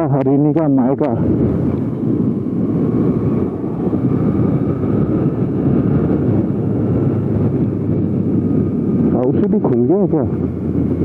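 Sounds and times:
faint engine whine: 0:00.0 - 0:11.0
road rumble: 0:00.0 - 0:11.0
wind on microphone: 0:00.0 - 0:11.0.

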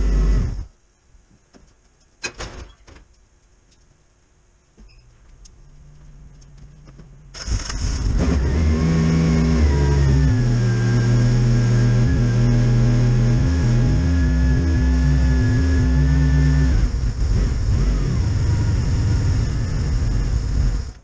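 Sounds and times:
car engine starting and idling: 0:00.0 - 0:00.7, 0:05.4 - 0:21.0
low hum: 0:04.0 - 0:21.0.

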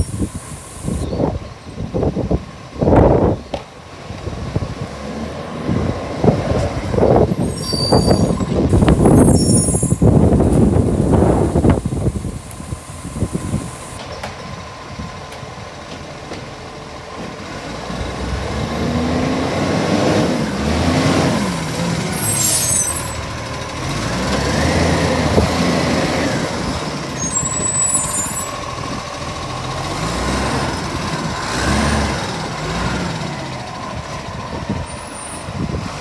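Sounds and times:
truck engine revving: 0:16.9 - 0:36.0.

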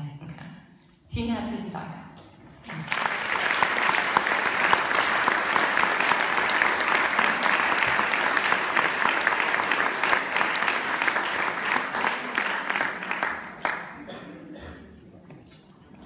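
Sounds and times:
audience applauding: 0:02.6 - 0:14.2.

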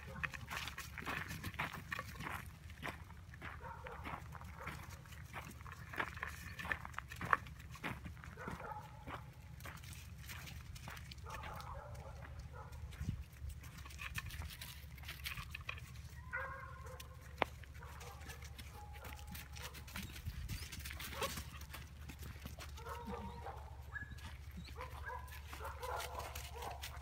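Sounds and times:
paws scuffling through dry leaves: 0:09.6 - 0:27.0.

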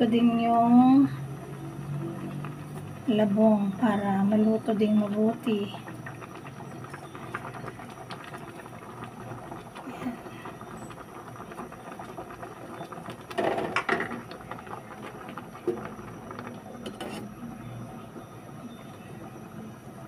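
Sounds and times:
pot bubbling on a stove: 0:00.0 - 0:20.0
spatula clattering and scraping pot: 0:16.8 - 0:17.4.

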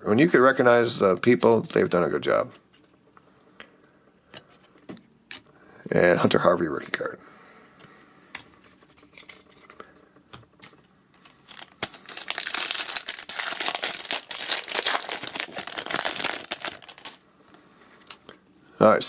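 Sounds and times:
foil wrapper crinkling: 0:10.6 - 0:17.2.

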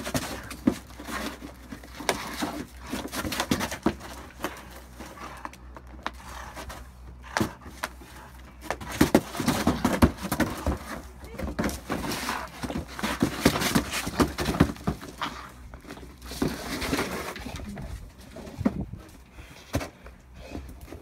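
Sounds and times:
cardboard scraping on stone: 0:06.1 - 0:18.9.

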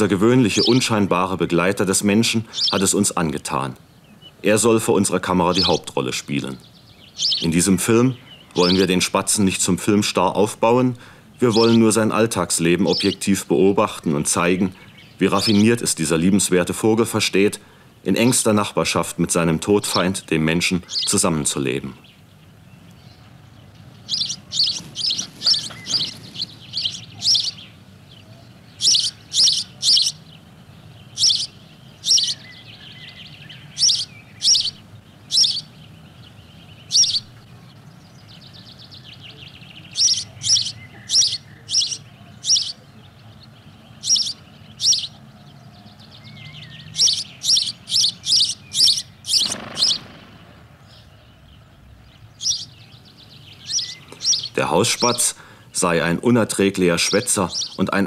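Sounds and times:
sparrow chirping: 0:00.0 - 0:58.0.

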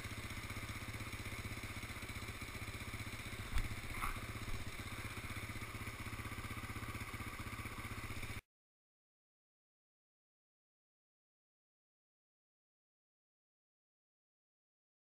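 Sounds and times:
atv engine running at low revs: 0:00.0 - 0:08.4
clunks over rough ground: 0:03.4 - 0:05.2.

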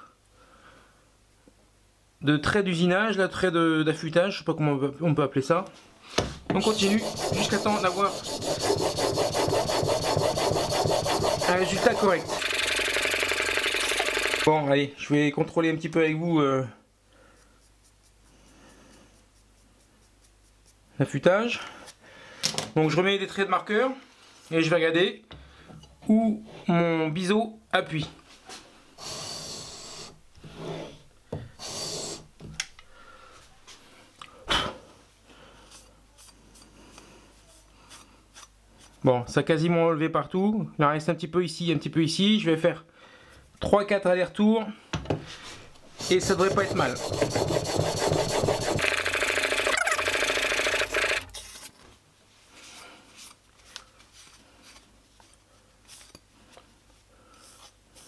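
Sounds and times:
blade scraping on whetstone: 0:06.6 - 0:12.7, 0:46.0 - 0:51.7.

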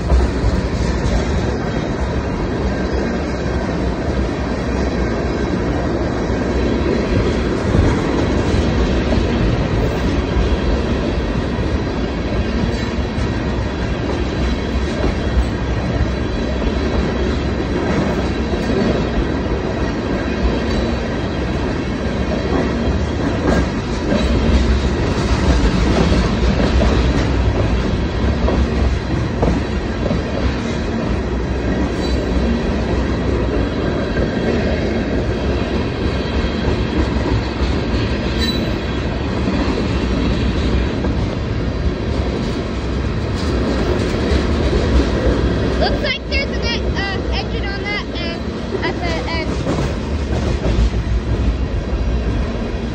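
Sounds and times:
train wheels clacking over rail joints: 0:00.0 - 0:52.9
high squeal of train wheels: 0:31.8 - 0:32.5, 0:38.3 - 0:39.0.

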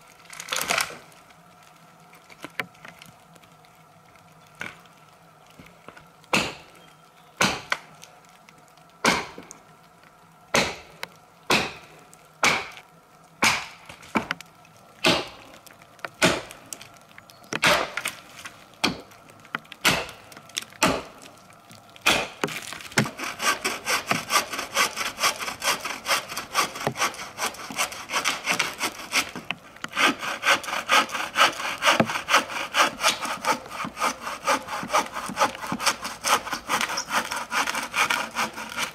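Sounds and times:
axe chopping log: 0:06.3 - 0:06.6, 0:07.4 - 0:07.8, 0:09.0 - 0:09.5, 0:10.6 - 0:10.9, 0:11.5 - 0:11.8, 0:12.4 - 0:12.7, 0:13.4 - 0:14.3, 0:15.0 - 0:15.4, 0:16.2 - 0:16.5, 0:17.6 - 0:18.0, 0:19.8 - 0:20.1, 0:20.8 - 0:21.1, 0:22.0 - 0:23.2
hand saw cutting wood: 0:23.0 - 0:38.9.

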